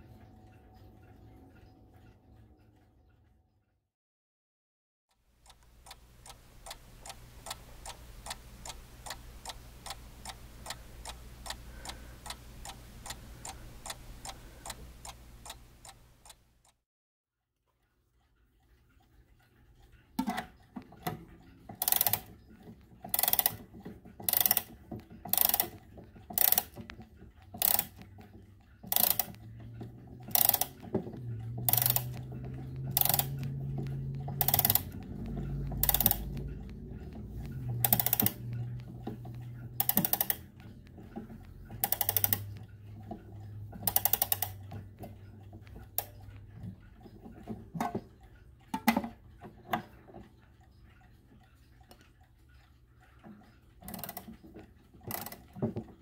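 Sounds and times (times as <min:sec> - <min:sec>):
clock ratchet clicking: 0:05.4 - 0:16.8, 0:19.8 - 0:56.0
low hum: 0:29.2 - 0:46.9.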